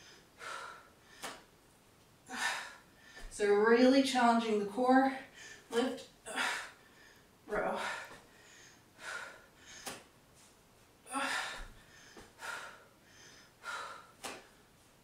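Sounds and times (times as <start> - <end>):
woman breathing hard: 0.0 - 1.5, 2.2 - 3.4, 6.3 - 10.1, 11.0 - 14.7.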